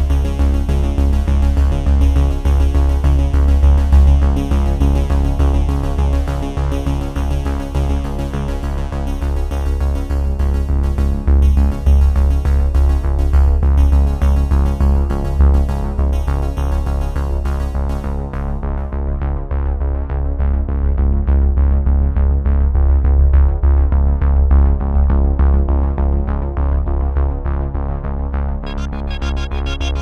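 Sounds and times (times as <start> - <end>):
electronic music with synthesizer: 28.6 - 30.0.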